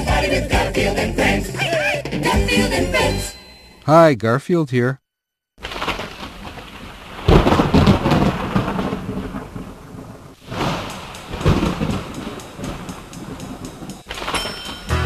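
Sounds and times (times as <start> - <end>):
steady rain: 5.6 - 14.4
rolling thunder: 6.0 - 14.4.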